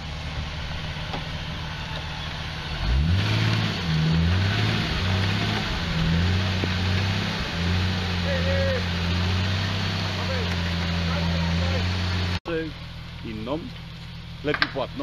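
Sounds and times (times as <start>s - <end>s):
vehicle engine idling and revving: 0.0s - 15.0s.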